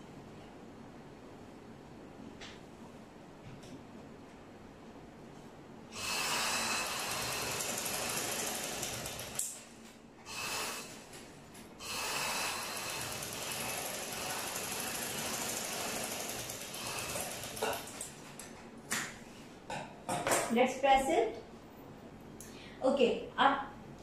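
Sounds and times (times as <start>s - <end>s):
sewing machine stitching: 6.1s - 9.6s, 11.9s - 18.1s.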